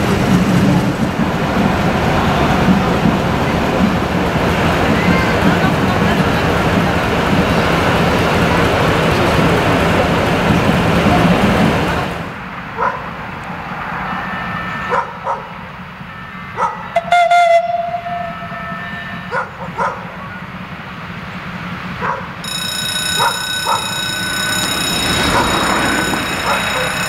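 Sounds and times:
diesel locomotive rumbling: 0.0 - 27.0
dog barking: 12.8 - 13.1, 14.9 - 15.6, 16.6 - 16.9, 19.3 - 20.1, 22.0 - 22.4
high-pitched whine: 22.4 - 27.0.

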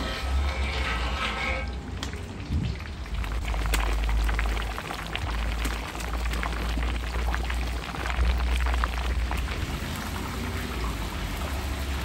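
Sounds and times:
deep-frying sizzle and pops: 1.6 - 12.0.

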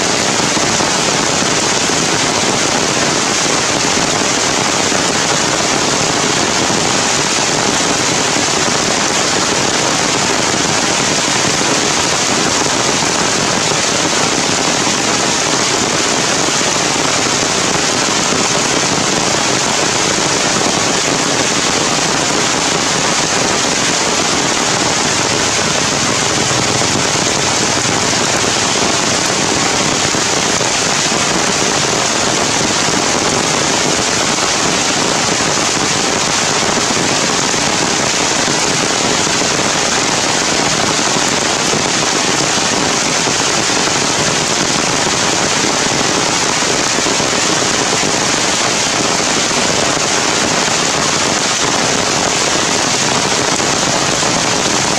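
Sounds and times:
heavy rain on foliage: 0.0 - 54.9.

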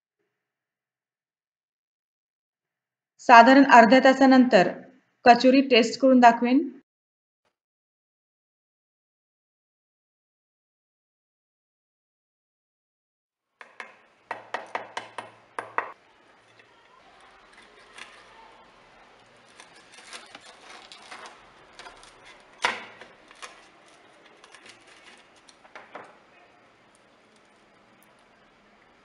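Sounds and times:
knife tapping on plate: 13.6 - 16.0
crust crackling and scraping: 13.6 - 29.0.

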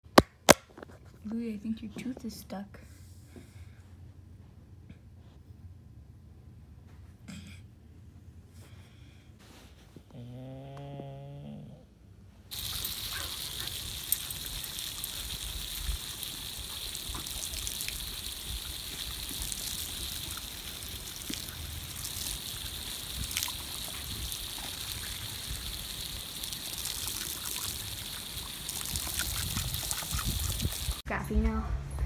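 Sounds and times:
hose spraying water on grass: 12.5 - 31.0.

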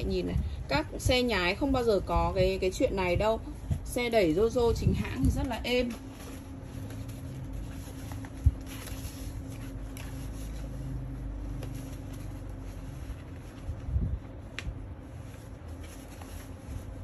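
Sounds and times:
steady low hum: 0.0 - 17.0
fabric rustling: 3.5 - 17.0.

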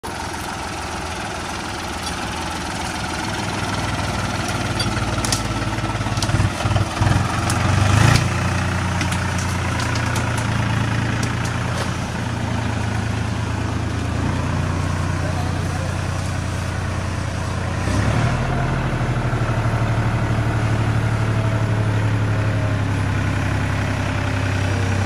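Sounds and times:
tractor diesel engine running: 0.0 - 25.0
sharp cracks of brush: 7.4 - 12.0.

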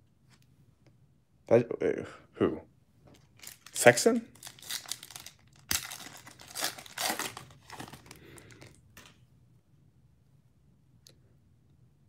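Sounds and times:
foil wrapper crinkling: 3.4 - 8.8.

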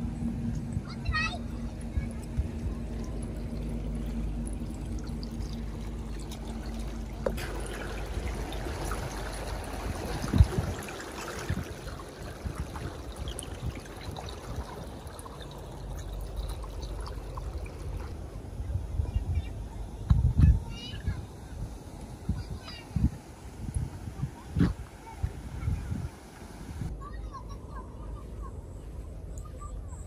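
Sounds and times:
steady low hum: 0.0 - 30.0
water splashing from fish: 2.0 - 18.2.

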